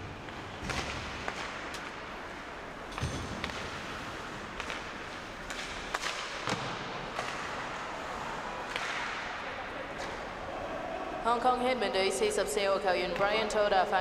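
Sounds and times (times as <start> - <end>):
hockey sticks and puck clacking: 0.0 - 10.5.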